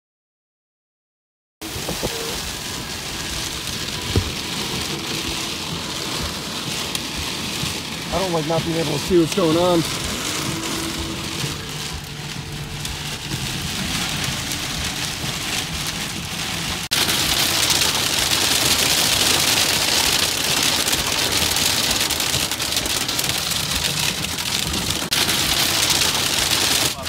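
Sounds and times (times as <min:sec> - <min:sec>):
hail hitting car windows: 0:01.6 - 0:27.0
rain pattering on car windows: 0:01.6 - 0:27.0.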